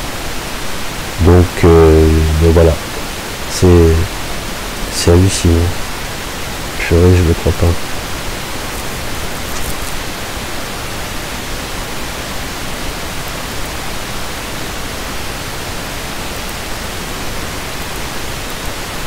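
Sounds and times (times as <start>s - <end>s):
recording noise hiss: 0.0s - 19.0s.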